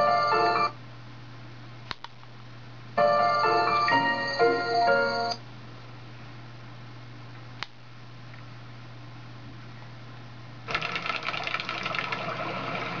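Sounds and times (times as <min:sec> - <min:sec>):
low hum and faint hiss: 0:00.0 - 0:10.7
dense rapid crackling from tv: 0:10.7 - 0:13.0.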